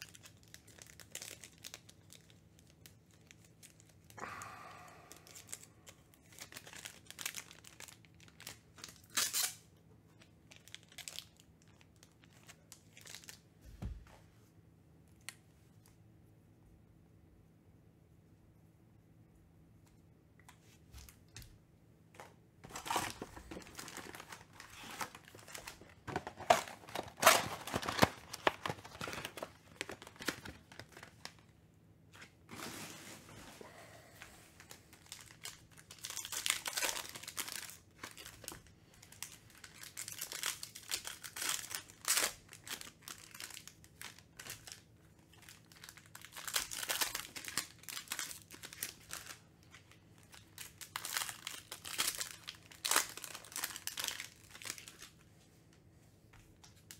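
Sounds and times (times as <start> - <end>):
foil packs crinkling and tearing: 0.0 - 13.4, 22.6 - 31.5, 34.6 - 55.2.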